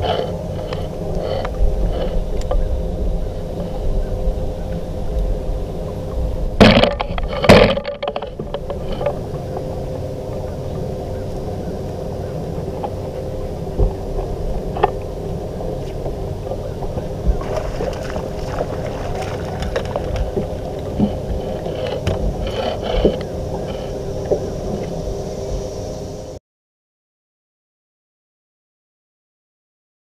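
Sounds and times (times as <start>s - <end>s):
water against boat hull: 0.0s - 10.9s, 12.3s - 25.2s
electric trolling motor humming: 0.0s - 26.4s.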